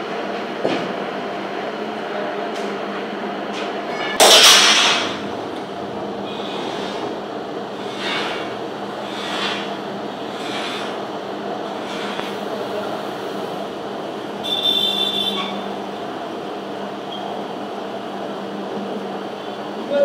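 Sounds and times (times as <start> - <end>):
rebar cutting machine humming: 3.5 - 16.5
shear blade cracking through steel bar: 4.2 - 5.2.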